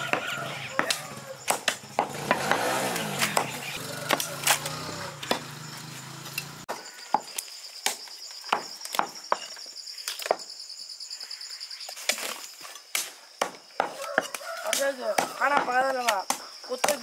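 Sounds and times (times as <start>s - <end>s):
cleaver chopping on wooden block: 0.0s - 5.5s, 13.4s - 14.4s.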